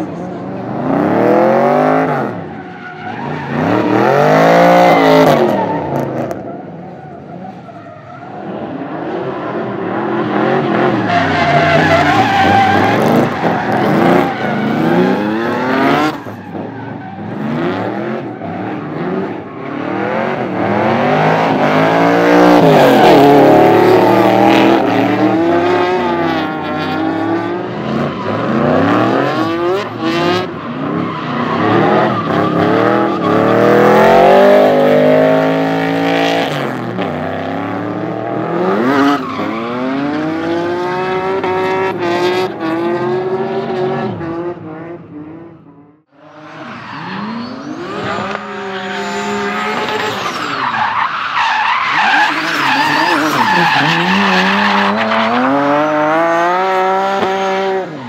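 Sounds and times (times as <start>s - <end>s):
tyres squealing on asphalt: 1.7s - 42.0s, 46.2s - 56.9s, 57.6s - 58.0s
car engine revving hard: 52.0s - 58.0s.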